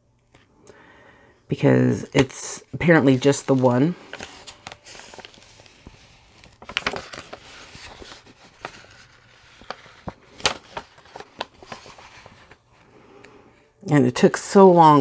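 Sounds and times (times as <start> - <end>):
plastic sheet crinkling: 2.8 - 12.9.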